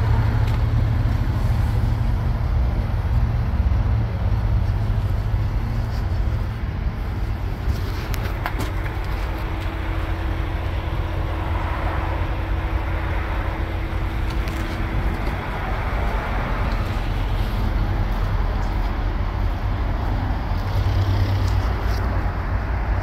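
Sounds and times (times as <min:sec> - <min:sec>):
diesel truck engine idling: 0:00.0 - 0:23.0.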